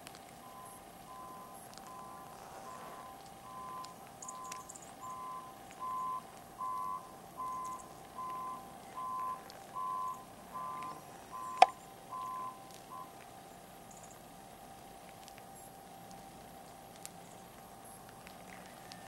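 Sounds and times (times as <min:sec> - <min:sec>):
reversing alarm beeping: 0:00.4 - 0:13.1.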